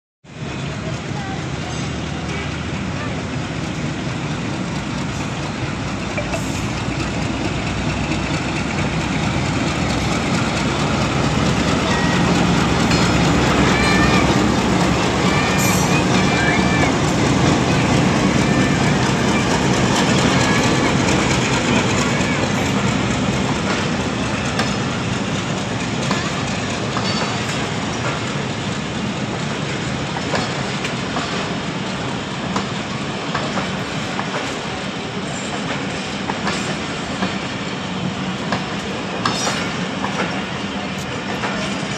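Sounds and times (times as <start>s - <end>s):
train wheels rumbling on track: 0.2s - 41.9s
diesel locomotive passing: 0.3s - 41.9s
wheels clicking over rail joints: 3.4s - 34.8s.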